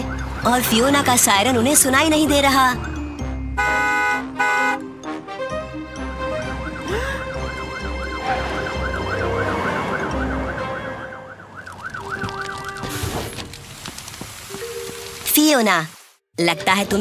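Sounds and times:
cartoon siren wailing: 6.3 - 12.8.

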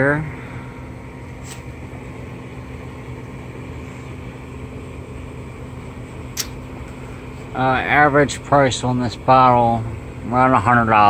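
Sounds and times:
ventilation hum: 0.0 - 11.0
short sharp click: 6.4 - 6.6.

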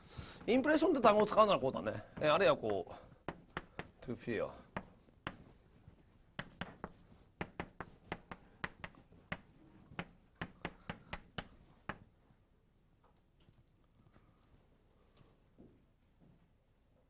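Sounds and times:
chalk tapping on blackboard: 1.5 - 12.1.

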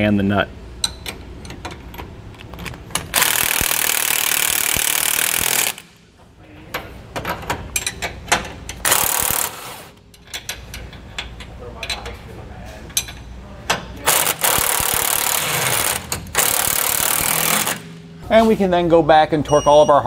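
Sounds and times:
impact wrench hammering: 2.9 - 6.0, 7.2 - 11.3, 13.0 - 18.1.

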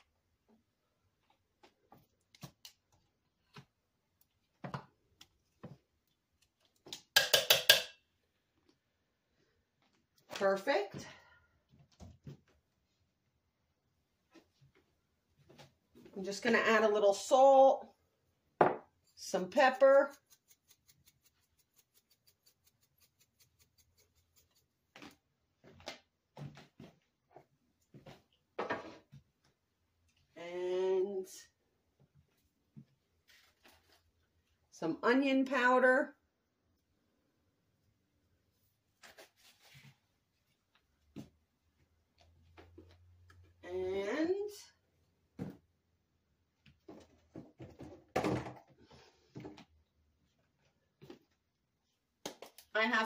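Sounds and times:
soft knocks and rustles of handling: 24.9 - 29.6.

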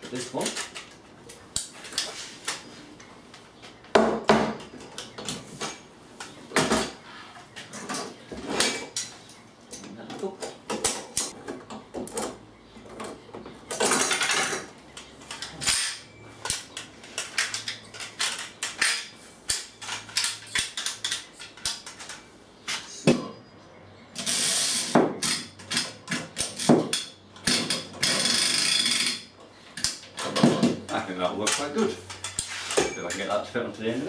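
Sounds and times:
metal parts and tools clinking: 7.6 - 23.0, 24.2 - 33.5.

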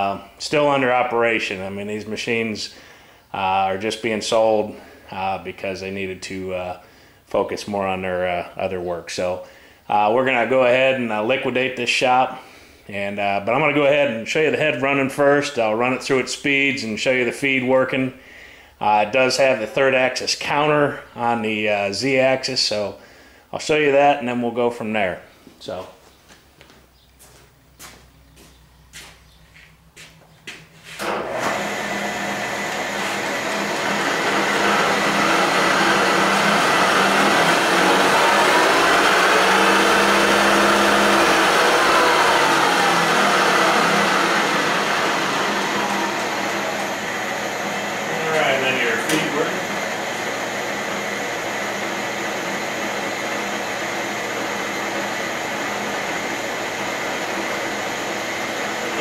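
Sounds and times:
milling machine spindle running: 31.0 - 59.0.

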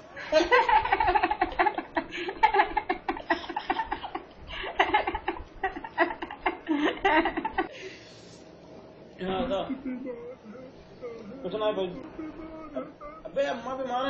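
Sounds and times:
young man laughing: 0.1 - 7.7, 9.6 - 10.6
faint breathing: 4.4 - 4.9, 7.7 - 8.5.

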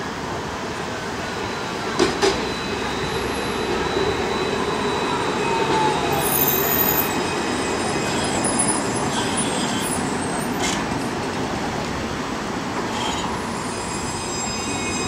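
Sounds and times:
tram rolling on street track: 0.0 - 15.0
faint falling whine: 1.0 - 8.0.

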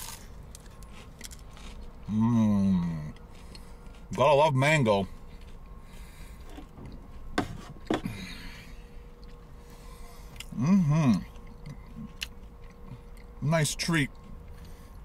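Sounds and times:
quiet eating: 0.0 - 15.0
person humming: 10.5 - 11.3.

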